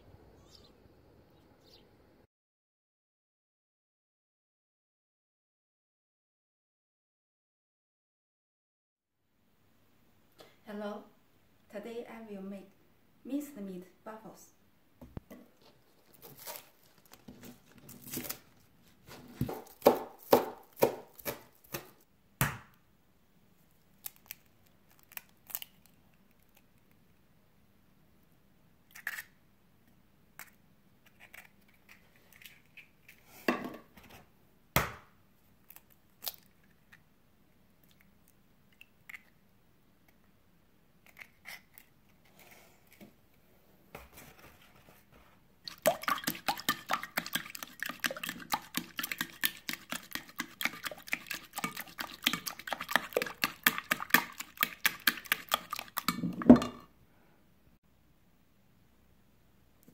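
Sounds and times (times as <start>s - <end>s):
cleaver chopping on plastic board: 19.4s - 22.7s.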